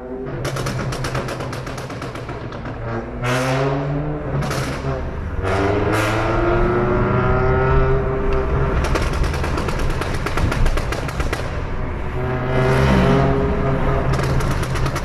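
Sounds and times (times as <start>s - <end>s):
car engine revving: 0.0s - 15.0s
exhaust crackles and pops: 0.3s - 3.0s, 8.3s - 11.6s, 14.0s - 15.0s.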